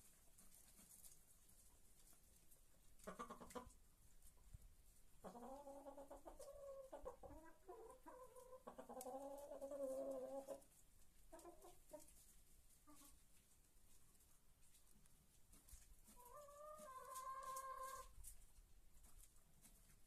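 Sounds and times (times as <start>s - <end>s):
chickens calling: 3.0s - 3.8s, 5.2s - 13.3s, 15.5s - 18.2s.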